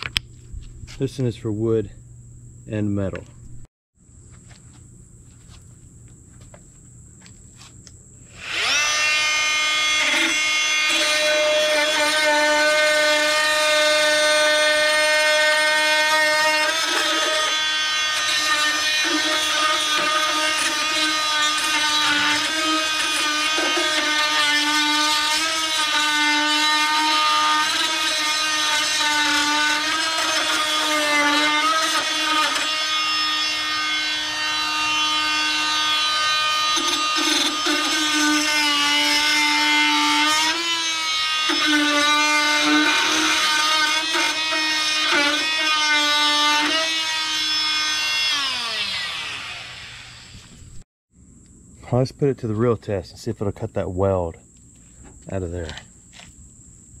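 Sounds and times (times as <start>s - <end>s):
oscillating multi-tool buzzing: 7.2s - 50.8s
tool winding down: 8.4s - 50.5s.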